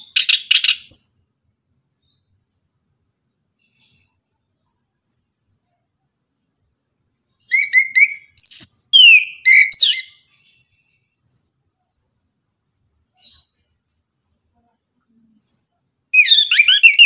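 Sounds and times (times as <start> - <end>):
bird whistling song: 0.0 - 1.1, 7.4 - 10.3, 16.2 - 17.0.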